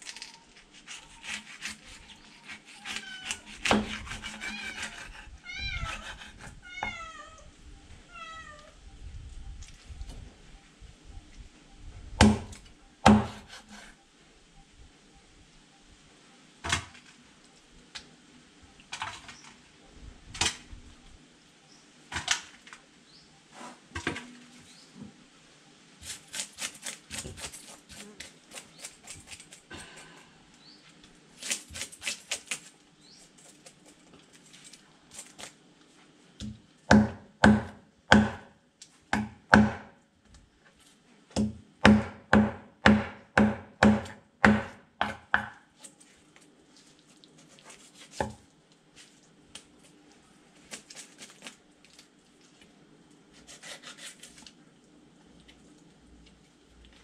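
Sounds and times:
knife chopping on wooden block: 12.2 - 13.7, 36.9 - 38.4, 39.1 - 39.9, 41.4 - 45.6.

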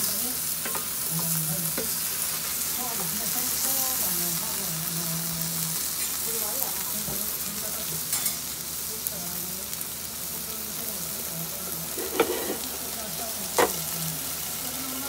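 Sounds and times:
food sizzling on a griddle: 0.0 - 15.0
metal lid clanking: 12.0 - 12.7, 13.6 - 13.8.

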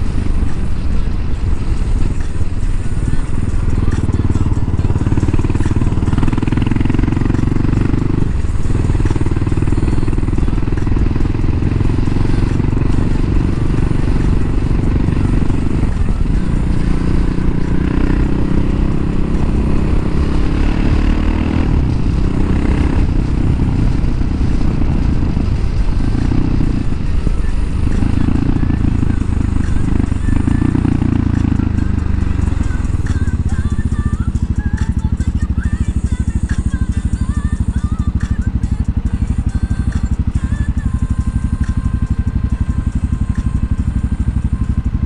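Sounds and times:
motorcycle engine running: 0.0 - 45.0
wind and road noise: 0.0 - 45.0.

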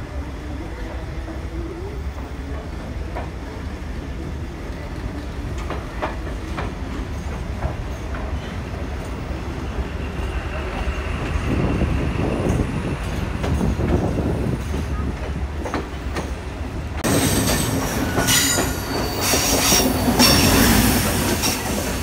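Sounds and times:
train rumbling on rails: 0.0 - 22.0
high wheel squeal: 17.2 - 21.7.

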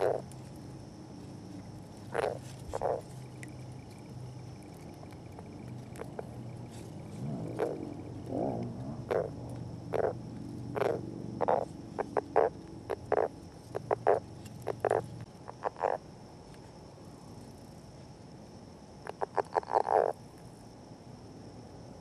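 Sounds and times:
frog croaking: 0.0 - 0.4, 2.0 - 3.9, 4.6 - 16.0, 19.0 - 20.2.

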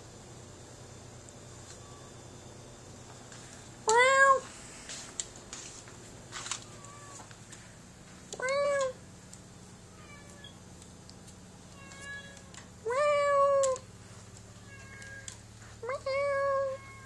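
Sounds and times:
cats meowing: 6.6 - 7.4, 9.9 - 10.6, 11.7 - 13.8, 14.4 - 17.0.

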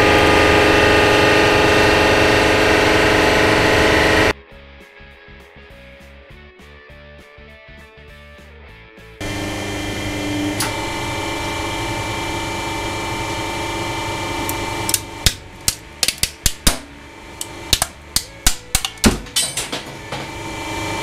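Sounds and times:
hydraulic pump humming: 0.0 - 4.3, 9.2 - 21.0
plastic cracking and snapping: 14.9 - 16.8.

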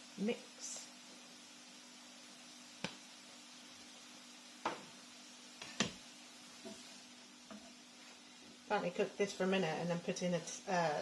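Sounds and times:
spatula knocking frying pan: 5.6 - 6.0.

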